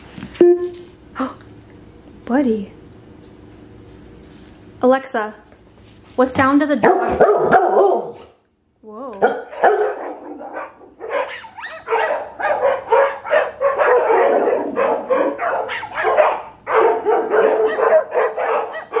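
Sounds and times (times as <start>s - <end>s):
recorded dog barking from speaker: 6.8s - 8.3s, 9.2s - 19.0s.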